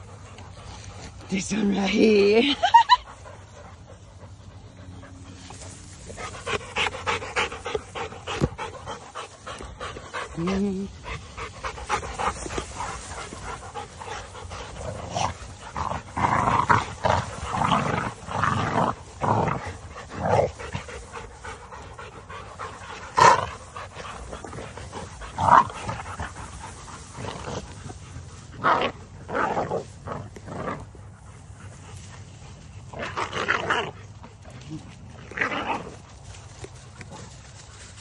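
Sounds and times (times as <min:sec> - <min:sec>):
dogs panting: 0:00.0 - 0:29.3
dogs scuffling in grass: 0:00.0 - 0:38.0.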